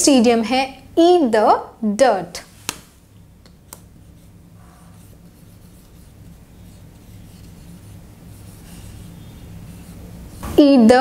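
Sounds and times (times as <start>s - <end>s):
marker writing on whiteboard: 3.5s - 10.5s.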